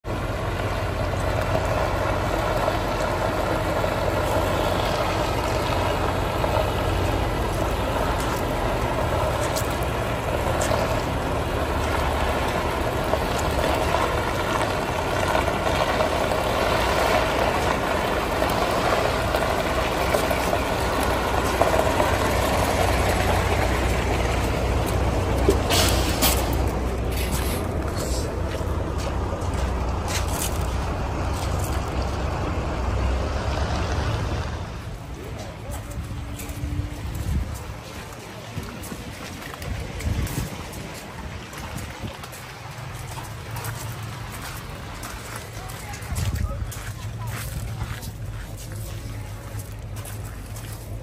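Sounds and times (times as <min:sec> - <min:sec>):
diesel truck engine idling: 0:00.0 - 0:51.0.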